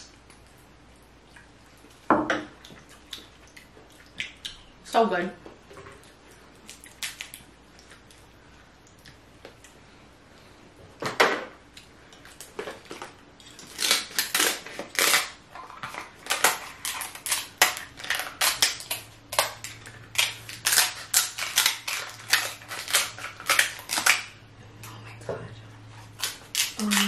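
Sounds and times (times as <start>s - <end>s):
scissors cracking crab shells: 13.6s - 24.3s, 26.2s - 27.0s.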